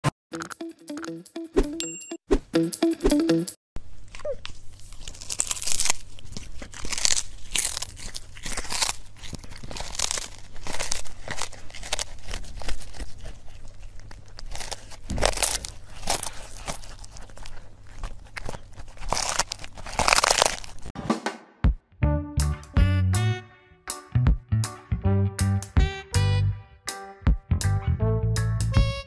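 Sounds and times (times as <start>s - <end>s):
crunching and crinkling: 3.8s - 21.0s.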